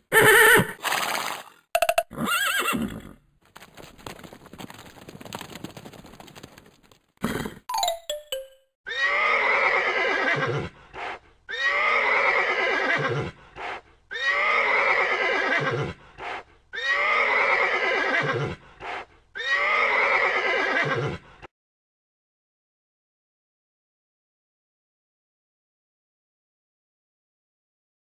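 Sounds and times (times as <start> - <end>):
horse whinnying: 0.1 - 1.1, 2.0 - 3.2, 8.9 - 10.7, 11.5 - 13.4, 14.1 - 16.0, 16.8 - 18.6, 19.4 - 21.2.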